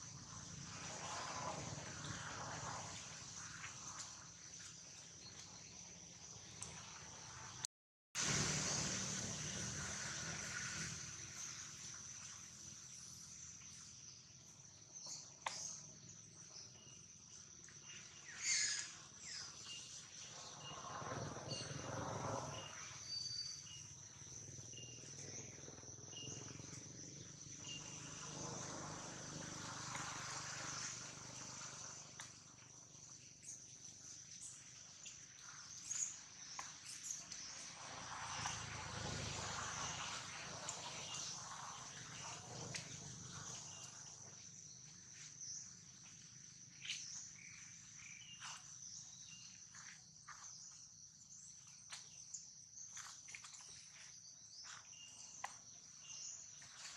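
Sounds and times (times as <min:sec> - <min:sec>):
insects droning: 0:00.0 - 0:07.6, 0:08.2 - 0:56.9.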